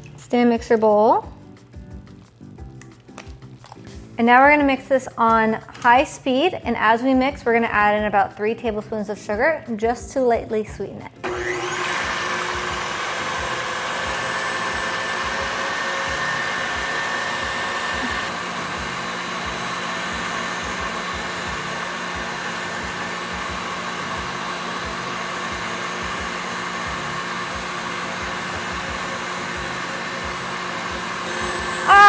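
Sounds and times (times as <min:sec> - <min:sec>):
stand mixer motor whir: 0:11.2 - 0:32.0.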